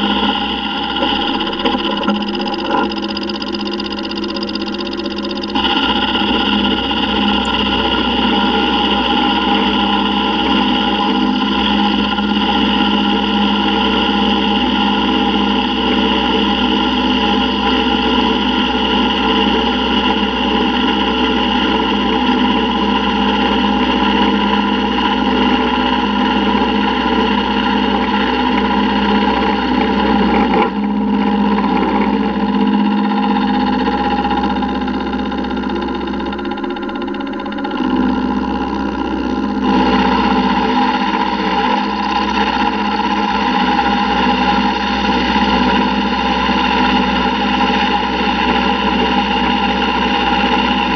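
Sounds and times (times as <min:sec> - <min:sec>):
milling machine cutting metal: 0:00.0 - 0:50.9.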